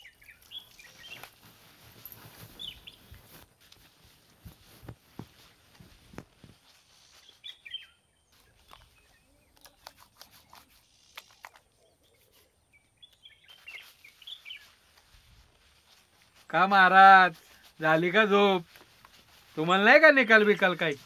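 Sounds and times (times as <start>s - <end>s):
bird chirps: 0.0s - 1.4s, 2.5s - 3.3s, 7.0s - 14.9s.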